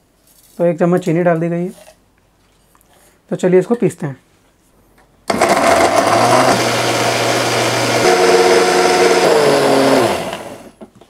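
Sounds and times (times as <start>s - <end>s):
mixer grinder running: 5.3s - 10.8s.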